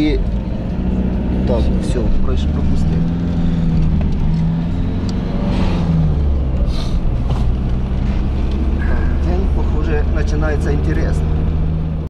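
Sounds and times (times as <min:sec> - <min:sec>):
car engine and tyre drone: 0:00.0 - 0:12.0.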